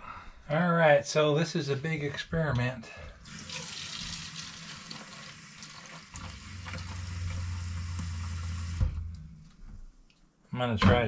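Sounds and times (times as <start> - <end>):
faucet filling plastic bottle: 3.2 - 8.8
low steady hum: 6.2 - 10.1.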